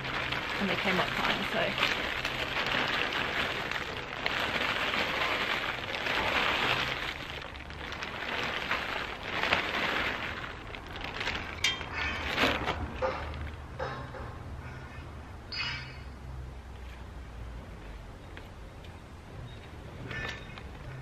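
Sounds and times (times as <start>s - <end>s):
compost pouring into pot: 0.0s - 11.6s
plastic sack crinkling: 0.0s - 13.6s.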